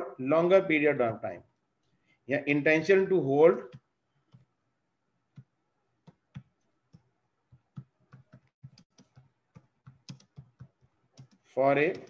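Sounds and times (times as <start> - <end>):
faint keyboard typing: 3.7 - 4.6, 5.3 - 12.0.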